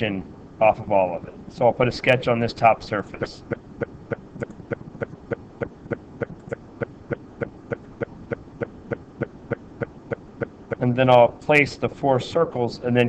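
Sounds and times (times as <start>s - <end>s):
steady sharp ticking: 3.2s - 11.3s.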